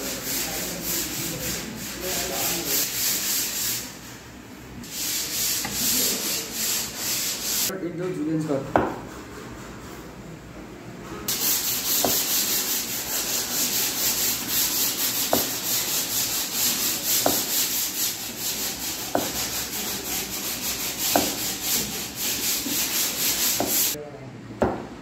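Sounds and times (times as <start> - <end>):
knife cutting carrot on board: 19.1 - 19.4, 21.0 - 21.5.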